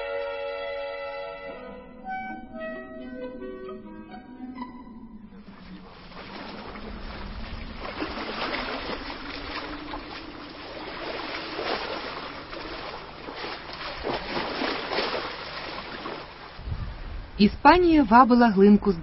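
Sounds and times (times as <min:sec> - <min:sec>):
waves splashing against rock: 0:05.5 - 0:16.7.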